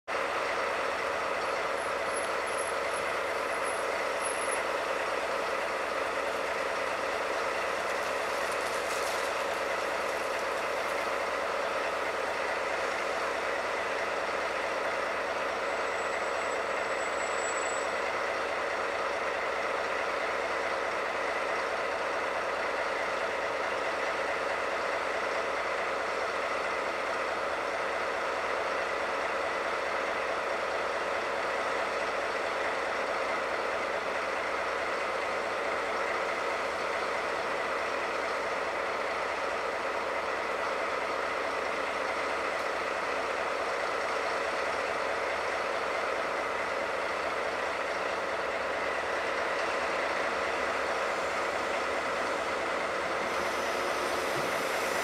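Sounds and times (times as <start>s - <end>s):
electric locomotive humming: 0.1s - 55.0s
brief hiss: 53.3s - 55.0s.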